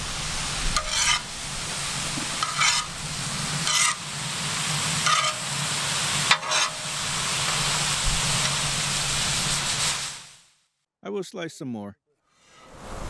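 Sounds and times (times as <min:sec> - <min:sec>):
vegetables sizzling in a pan: 0:00.0 - 0:10.5
metal skimmer scraping a pan: 0:00.7 - 0:01.4, 0:02.2 - 0:03.0, 0:03.6 - 0:04.1, 0:05.0 - 0:05.6, 0:06.2 - 0:07.8.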